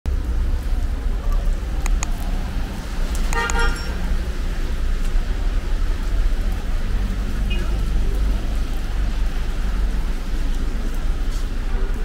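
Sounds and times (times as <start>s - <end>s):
traffic rumble on wet street: 0.1s - 12.0s
light clicks: 1.8s - 2.2s
car horn toot: 3.3s - 4.0s.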